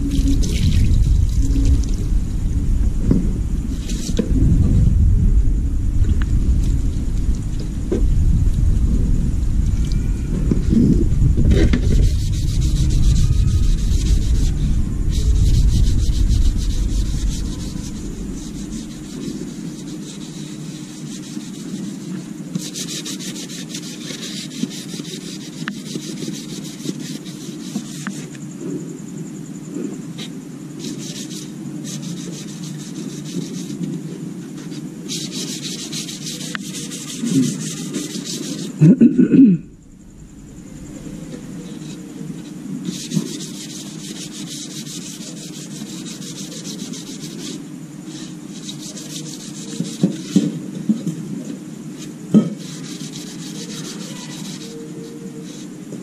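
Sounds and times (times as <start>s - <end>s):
sandpaper rubbing on plastic: 0.0s - 2.0s, 3.7s - 4.4s, 9.8s - 28.3s, 30.2s - 38.8s, 41.0s - 55.8s.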